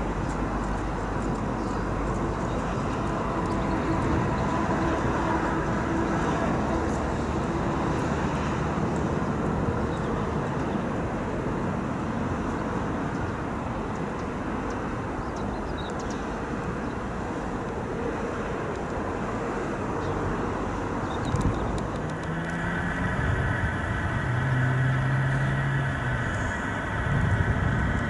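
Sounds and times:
jet engines roaring: 17.0s - 28.0s.

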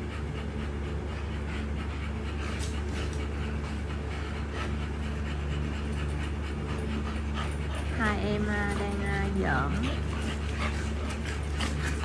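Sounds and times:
dogs panting: 0.0s - 12.0s
steady low hum: 0.0s - 12.0s.

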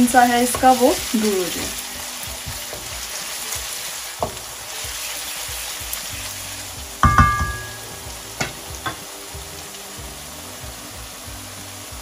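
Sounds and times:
wooden spoon stirring in a wok: 0.0s - 7.2s
onions sizzling in hot oil: 0.0s - 12.0s
loud metallic knock: 7.0s - 8.6s.

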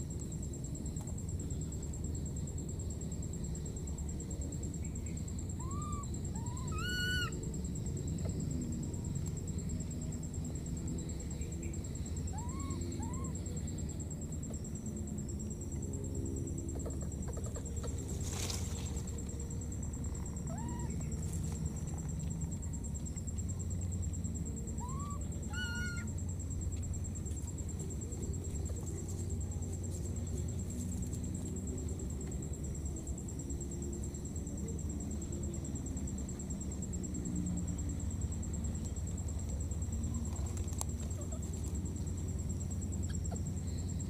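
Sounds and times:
shrill monkey call: 5.5s - 7.5s, 12.2s - 13.6s, 20.4s - 21.2s, 24.7s - 26.2s
baby monkey coo calls: 5.6s - 7.5s, 12.2s - 13.6s, 16.7s - 18.0s, 20.4s - 21.1s, 24.7s - 26.2s.

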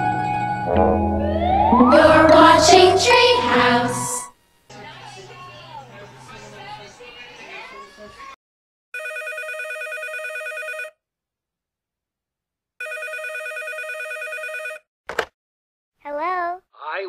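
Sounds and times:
telephone ringing: 9.0s - 11.0s, 12.8s - 14.8s.

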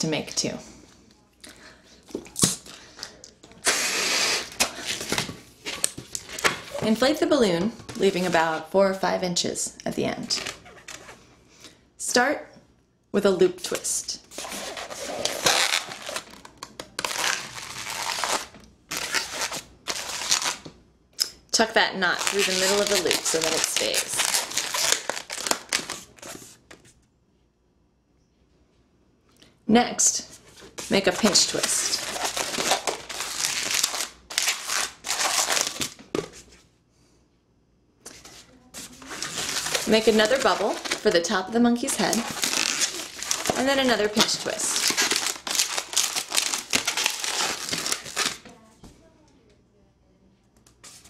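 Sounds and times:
balloon crinkling rub: 14.3s - 20.6s, 22.0s - 26.9s, 38.1s - 48.4s
balloon being twisted and rubbed: 22.3s - 26.6s.

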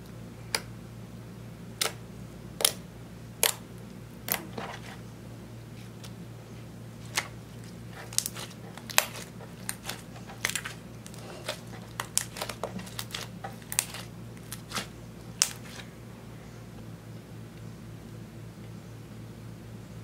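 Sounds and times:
hands kneading slime: 1.7s - 2.8s, 3.4s - 16.0s.

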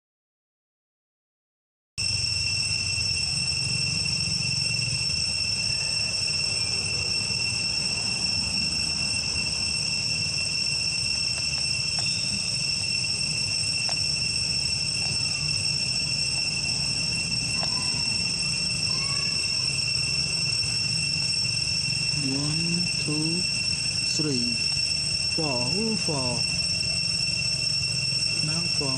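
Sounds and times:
insects buzzing: 2.0s - 28.9s.

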